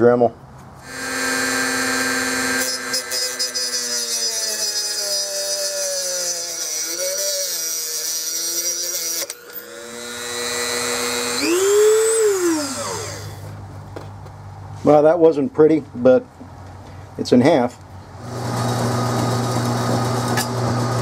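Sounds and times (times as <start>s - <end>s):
rotary tool cutting metal: 0.8s - 13.4s.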